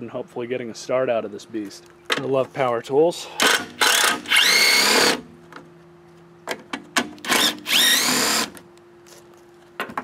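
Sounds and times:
drill clicks: 0:03.4 - 0:05.2, 0:07.2 - 0:08.6
drill motor whining: 0:03.4 - 0:05.2, 0:07.2 - 0:08.6.

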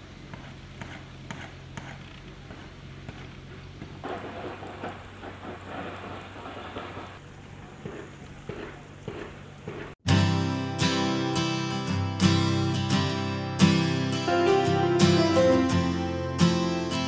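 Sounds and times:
crackling hiss with ticks: 0:00.2 - 0:09.8
strummed acoustic guitar music: 0:10.1 - 0:17.0.

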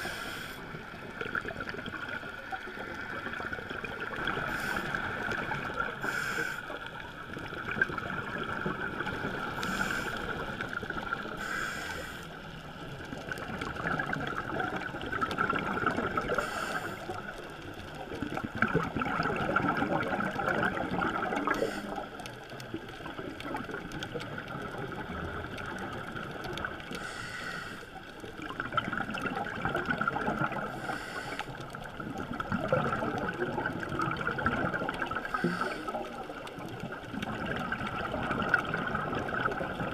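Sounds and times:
steady hiss: 0:00.0 - 0:01.0, 0:06.0 - 0:07.2, 0:09.4 - 0:12.5, 0:16.2 - 0:17.3, 0:21.4 - 0:22.2, 0:26.9 - 0:28.0, 0:30.7 - 0:31.6, 0:35.2 - 0:36.5
underwater regulator bubbles: 0:00.0 - 0:39.9.

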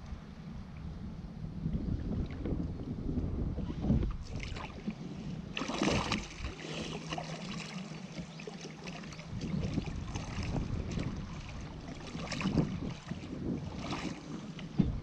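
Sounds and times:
wind on microphone: 0:00.0 - 0:15.0
water lapping against kayak hull: 0:00.7 - 0:15.0
loud water splash: 0:05.5 - 0:07.8.

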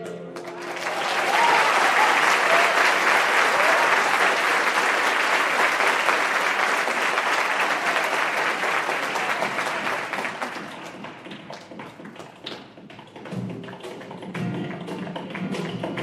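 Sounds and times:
audience applauding: 0:00.4 - 0:12.6.

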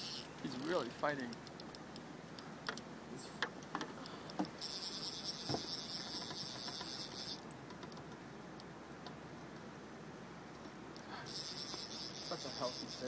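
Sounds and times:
reel buzzing as line pulls out: 0:00.0 - 0:00.8, 0:04.6 - 0:07.4, 0:11.2 - 0:13.0
fishing reel drag clicking: 0:00.0 - 0:01.8, 0:04.4 - 0:07.4, 0:11.2 - 0:13.0.

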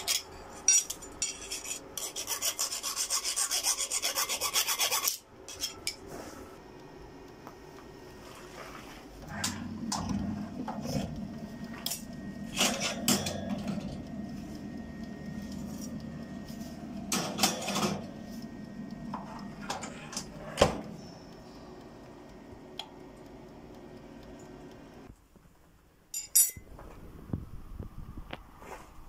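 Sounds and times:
metal oven rack clanking: 0:11.8 - 0:14.0, 0:17.1 - 0:18.1.

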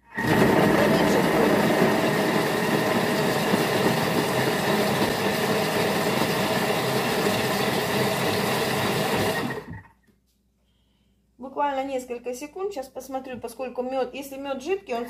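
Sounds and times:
food processor motor hum: 0:00.0 - 0:09.8.

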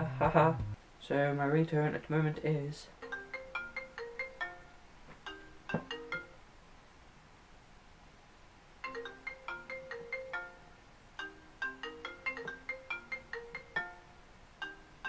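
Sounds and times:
phone ringtone melody: 0:03.0 - 0:04.7, 0:05.3 - 0:06.4, 0:08.9 - 0:15.0.

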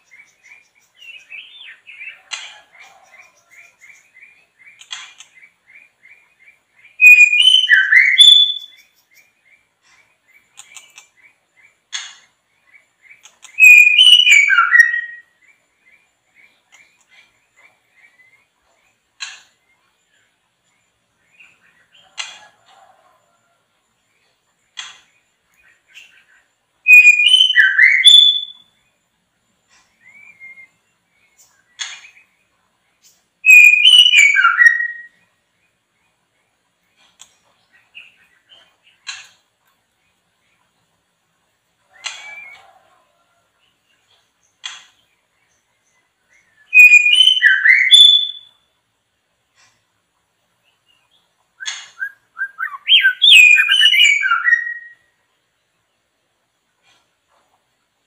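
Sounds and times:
songbird whistling song: 0:00.0 - 0:18.6, 0:24.8 - 0:28.9, 0:29.9 - 0:35.4, 0:41.9 - 0:42.8, 0:44.6 - 0:48.8, 0:50.7 - 0:55.2
songbird whistling: 0:06.9 - 0:08.9, 0:13.5 - 0:15.3, 0:26.8 - 0:28.7, 0:30.0 - 0:30.8, 0:33.4 - 0:35.2, 0:42.0 - 0:42.7, 0:46.4 - 0:48.6, 0:51.6 - 0:55.1.

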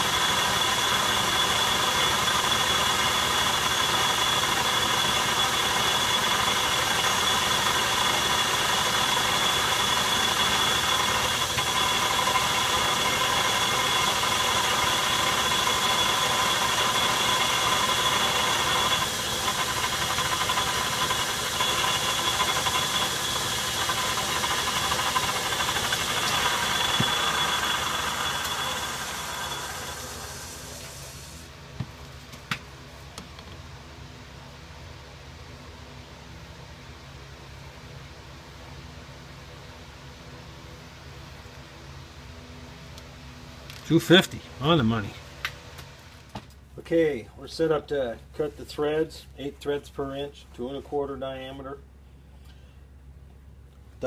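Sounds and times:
metal lathe whining: 0:00.0 - 0:31.1.

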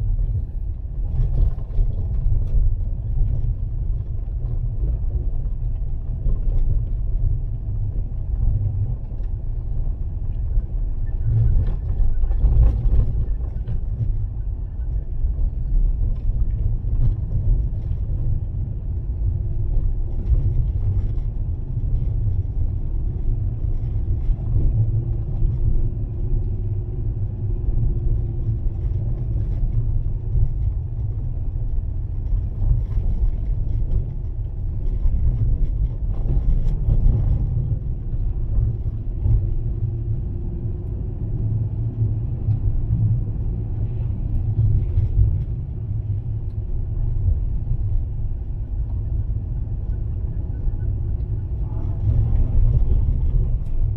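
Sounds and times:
car engine and tyre rumble: 0:00.0 - 0:53.9.

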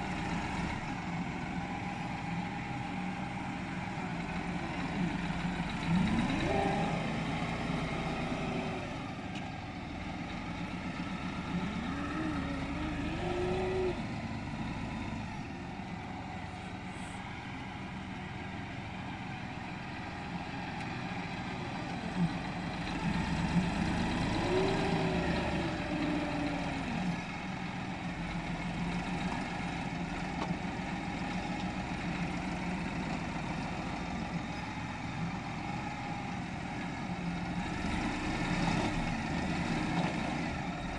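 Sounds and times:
second tractor idling: 0:00.0 - 0:40.9
tractor engine revving: 0:04.2 - 0:09.2, 0:10.0 - 0:15.4, 0:21.2 - 0:30.0.

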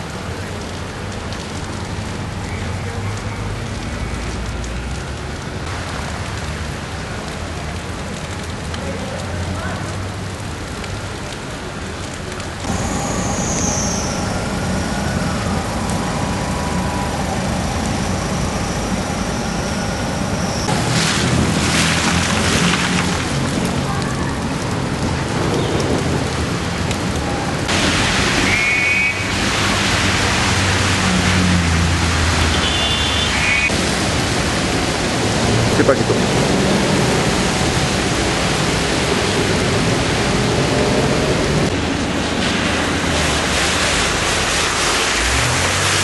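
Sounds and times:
rain hissing on street: 0:00.0 - 0:46.0
car engines running: 0:12.0 - 0:28.4.

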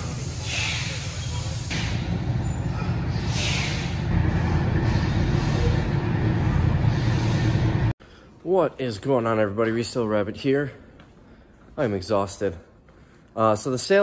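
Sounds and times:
short air hisses: 0:00.0 - 0:02.2, 0:03.1 - 0:04.1.

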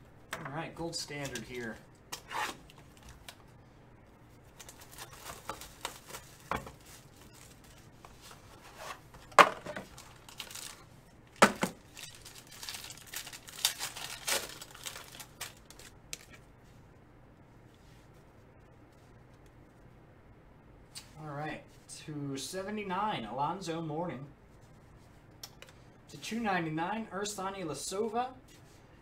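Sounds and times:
foil wrapper tearing and crinkling: 0:04.6 - 0:06.4, 0:09.9 - 0:10.8, 0:11.9 - 0:16.4.

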